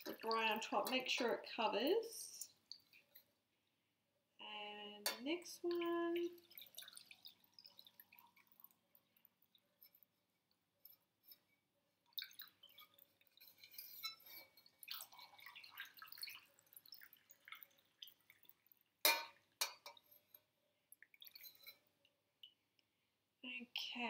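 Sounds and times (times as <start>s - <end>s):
liquid trickling through funnel: 5.6s - 10.1s, 12.1s - 19.0s.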